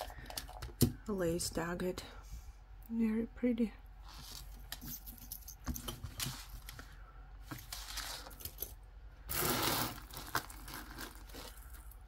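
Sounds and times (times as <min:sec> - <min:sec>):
metal chain clinking: 0:04.7 - 0:06.0.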